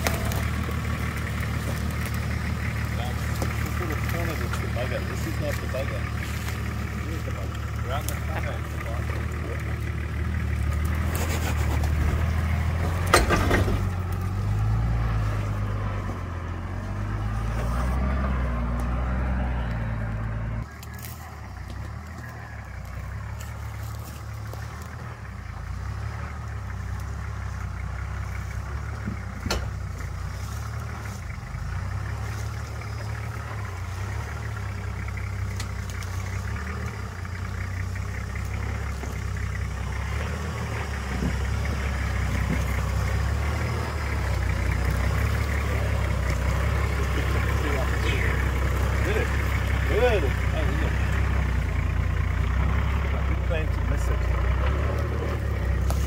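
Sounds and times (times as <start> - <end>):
engine running with low rumble: 0.0 - 56.0.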